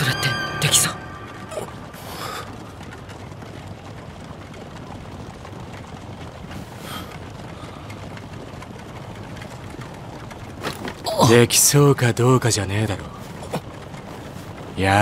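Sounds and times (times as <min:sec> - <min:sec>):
horse-drawn carriage rumbling: 0:00.0 - 0:15.0.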